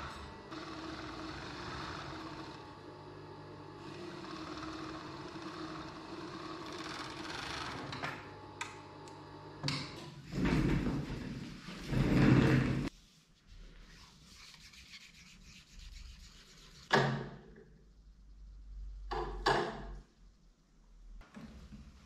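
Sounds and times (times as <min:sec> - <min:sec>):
overlock sewing machine stitching: 0:00.0 - 0:02.8, 0:03.7 - 0:08.4.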